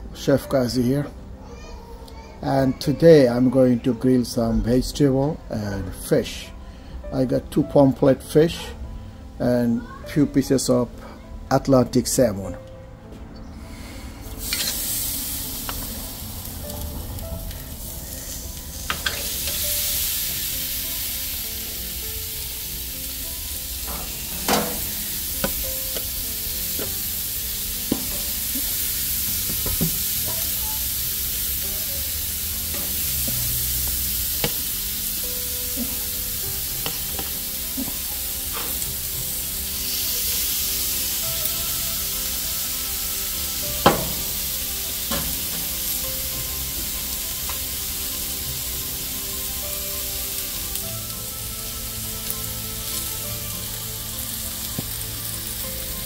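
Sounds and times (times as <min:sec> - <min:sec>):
fish sizzling on a grill: 0:09.4 - 0:10.7, 0:13.6 - 0:56.0.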